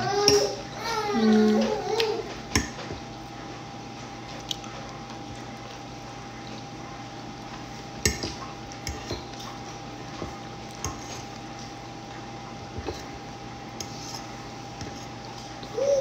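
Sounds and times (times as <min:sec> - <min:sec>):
fork scraping ceramic plate: 0:10.8 - 0:11.4, 0:13.8 - 0:15.1.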